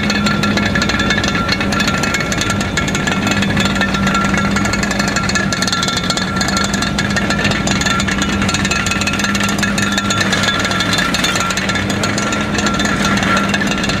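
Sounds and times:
excavator engine running: 0.0 - 14.0
metal cladding clattering and crunching: 0.0 - 14.0.

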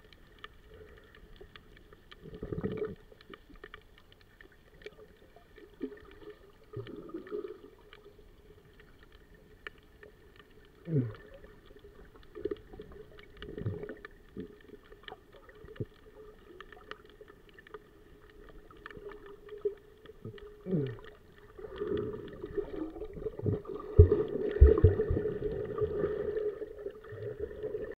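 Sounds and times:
muffled underwater water swishes: 0.0 - 27.9
low underwater thumps: 22.1 - 26.1.

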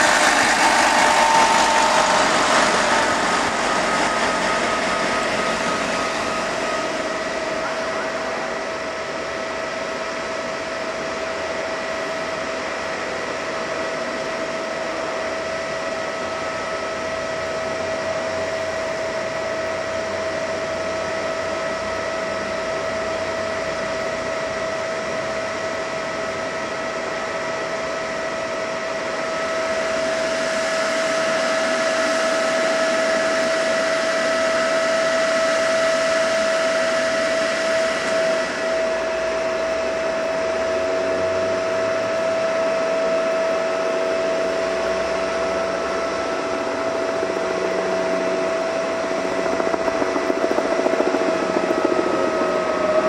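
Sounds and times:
electric train passing: 0.0 - 9.4, 43.1 - 53.0
fan-like whirr with whine: 0.0 - 53.0.

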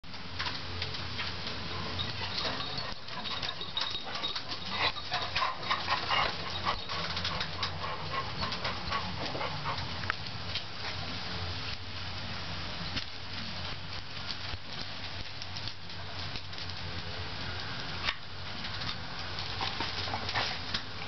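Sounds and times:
dog whimpering: 2.1 - 7.0.

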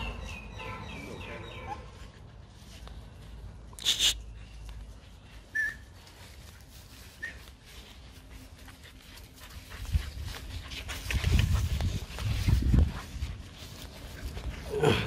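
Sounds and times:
puppy squeaking: 5.5 - 5.8
rustling and thumps in grass: 6.0 - 14.8.

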